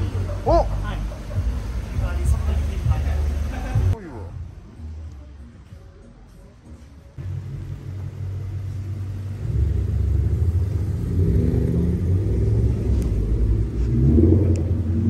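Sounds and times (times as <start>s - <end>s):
car exhaust rumble driving past: 7.2s - 15.0s.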